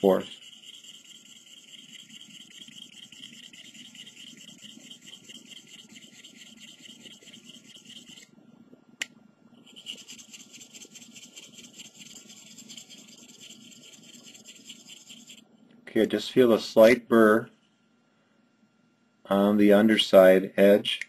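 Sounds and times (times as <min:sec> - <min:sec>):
knife blade scraping on stone: 0:00.1 - 0:08.2.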